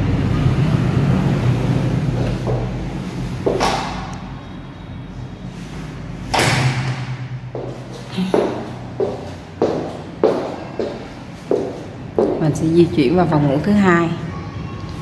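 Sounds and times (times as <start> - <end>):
low steady drone: 0.0 - 8.9.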